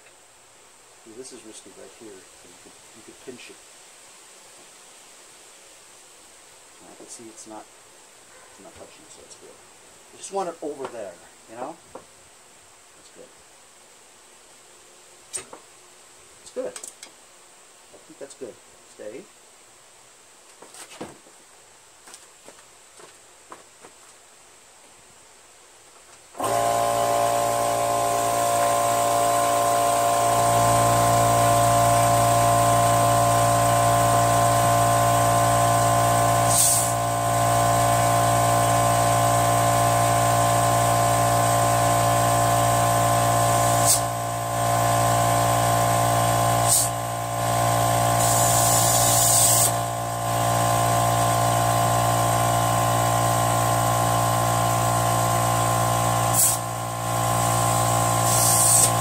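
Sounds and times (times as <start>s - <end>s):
air compressor running: 26.4s - 59.0s
short hisses of air: 36.5s - 37.0s, 46.6s - 47.0s, 48.2s - 49.8s, 56.3s - 56.7s, 58.2s - 59.0s.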